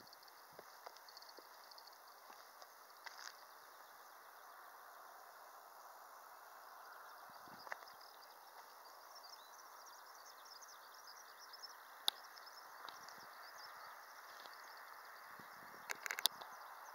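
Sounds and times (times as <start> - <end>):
insects chirping: 0.0 - 16.9.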